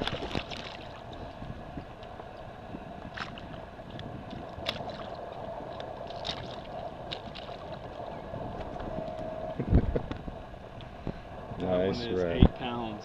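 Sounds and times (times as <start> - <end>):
fish splashing and thrashing: 0.0 - 10.3
steady hum: 0.0 - 13.0.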